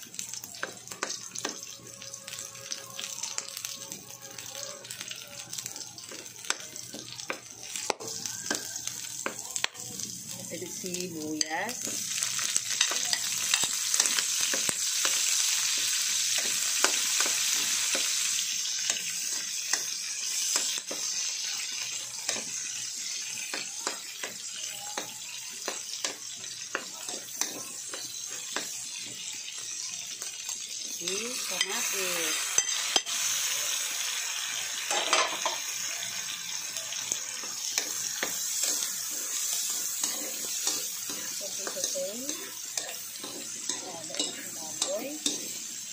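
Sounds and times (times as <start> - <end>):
vegetables sizzling in hot fat: 0.0 - 45.9
metal spatula clicking against pan: 39.7 - 45.4.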